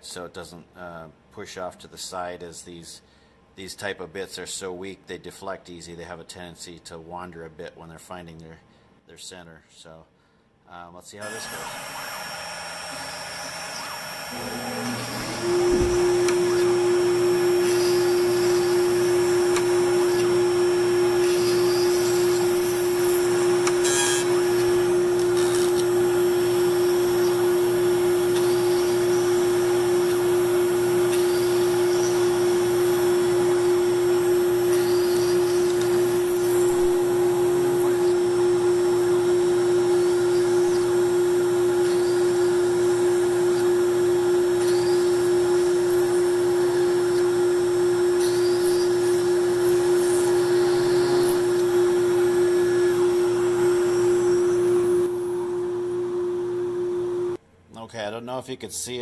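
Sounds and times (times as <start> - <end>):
drill bit drilling into wood: 11.2 - 55.6
router spindle whining: 11.2 - 57.4.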